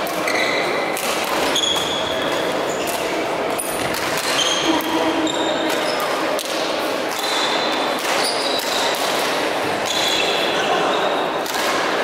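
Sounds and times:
shoes squeaking on hall floor: 0.0 - 6.3, 7.1 - 9.0, 9.7 - 11.4
racket hitting shuttlecock: 0.9 - 3.1, 3.8 - 5.1, 8.0 - 10.0, 11.4 - 12.0.

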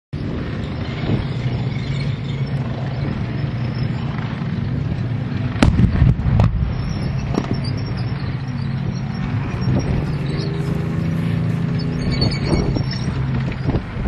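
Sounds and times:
low vehicle engine rumble: 0.2 - 14.0
explosion bang: 5.6 - 7.5.

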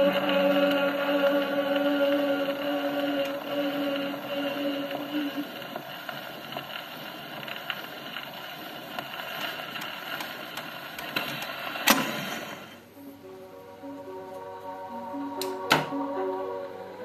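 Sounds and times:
needle hiss and crackles: 0.0 - 13.2
person singing on gramophone: 0.0 - 17.0.

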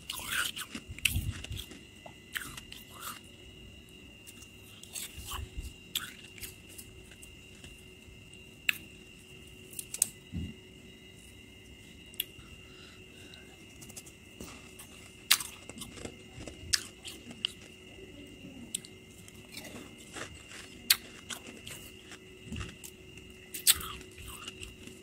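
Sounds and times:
frost being bitten and chewed: 0.1 - 3.2, 13.8 - 17.8, 18.7 - 25.0.

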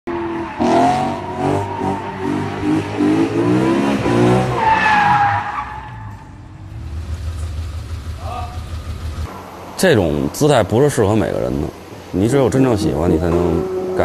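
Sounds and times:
car engine revving: 0.2 - 5.0, 11.1 - 14.0.

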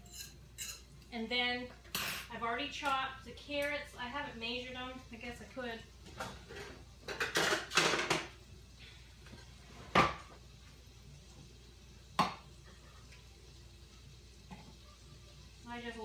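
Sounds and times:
dishes clattering: 0.0 - 0.9, 6.0 - 8.4, 9.9 - 10.4.

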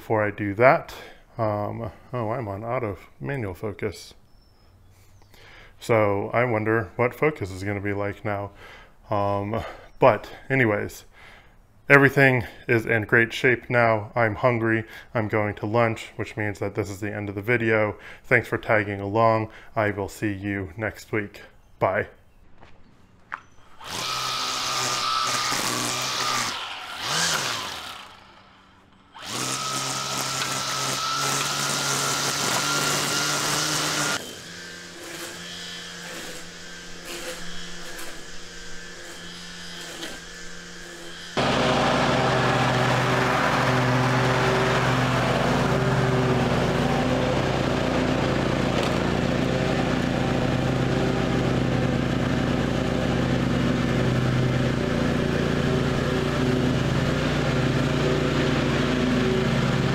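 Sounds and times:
riding mower engine running: 23.2 - 59.9
string trimmer running: 23.4 - 59.9.

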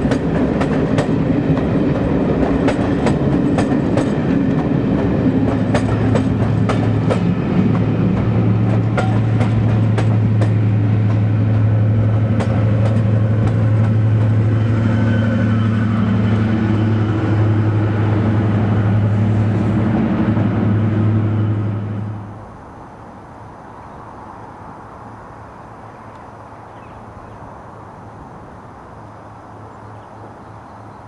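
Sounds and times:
diesel locomotive droning: 0.0 - 22.7.

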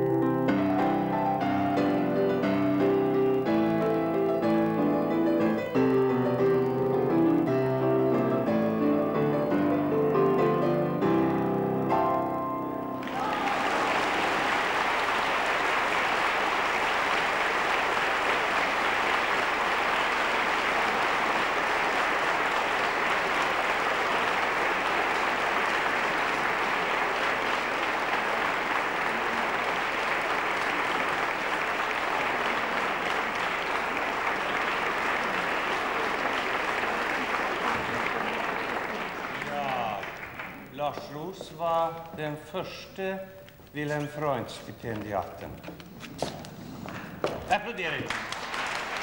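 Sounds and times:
audience applauding: 0.8 - 8.5, 13.0 - 41.4, 46.4 - 49.0.

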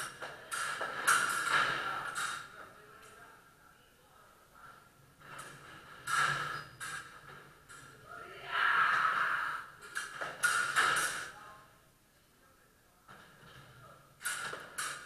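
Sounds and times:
fencing sabres clashing: 0.0 - 2.5, 8.8 - 11.3, 14.2 - 15.0.

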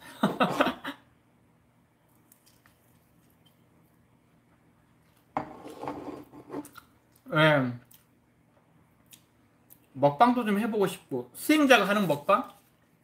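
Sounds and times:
crunchy chewing: 2.1 - 3.9.

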